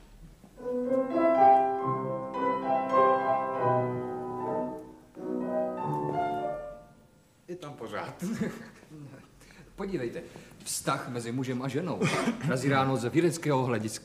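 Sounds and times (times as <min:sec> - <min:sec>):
instrumental melodic music: 0:00.6 - 0:07.2.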